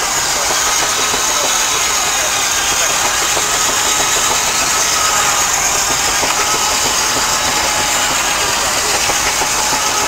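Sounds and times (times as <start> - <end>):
steam engine driving a saw: 0.0 - 10.0
steam hiss: 0.0 - 10.0.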